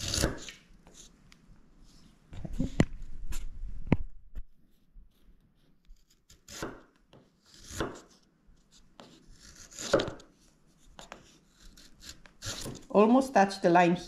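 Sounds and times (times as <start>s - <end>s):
chisel slicing wood: 0.0s - 1.0s, 5.9s - 10.3s, 10.9s - 12.9s.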